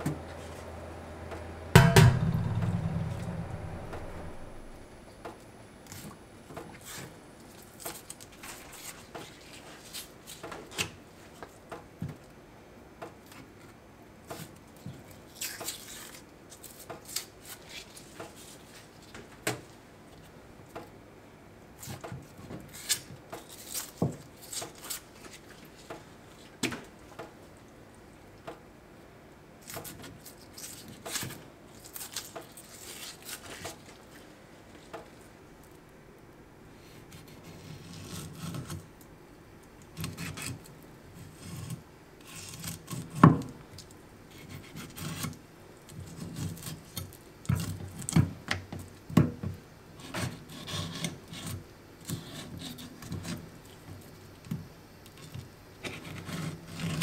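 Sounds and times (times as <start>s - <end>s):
fish skin tearing: 29.6s - 34.0s.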